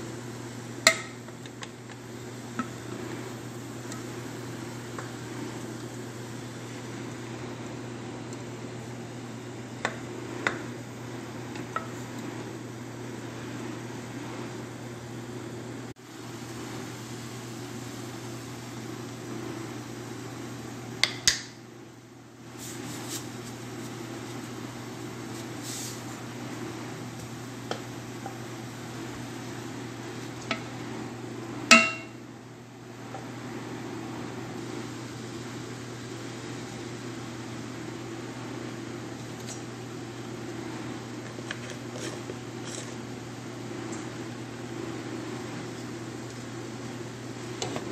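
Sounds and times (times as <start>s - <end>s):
steady low hum: 21.6s - 47.9s
utensil knocking on metal pot: 31.7s - 32.2s.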